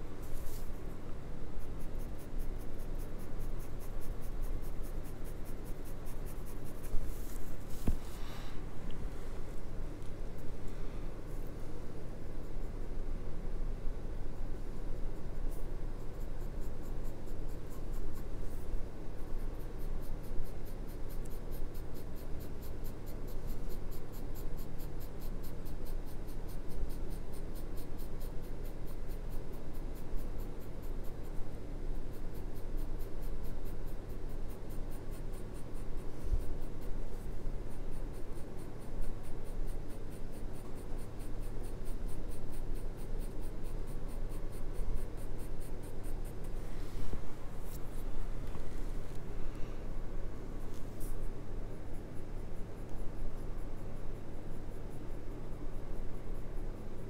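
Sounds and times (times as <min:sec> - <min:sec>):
pencil scratching on paper: 0:00.0 - 0:08.4, 0:14.9 - 0:49.1
steady low hum: 0:00.0 - 0:57.0.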